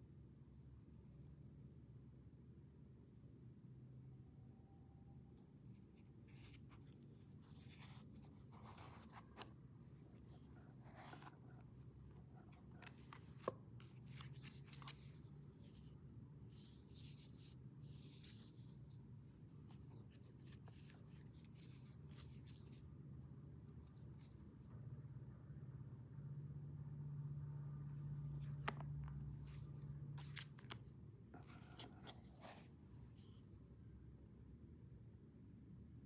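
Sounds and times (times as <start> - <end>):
rubbing and rustling: 6.0 - 22.8.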